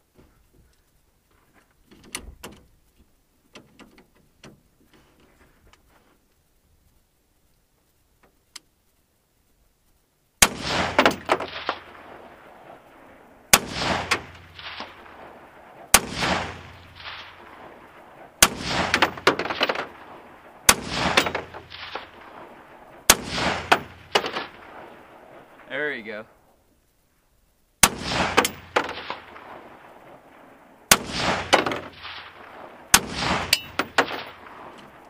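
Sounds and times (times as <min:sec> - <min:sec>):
rifle shots with echo: 0:10.4 - 0:26.1, 0:27.8 - 0:35.0.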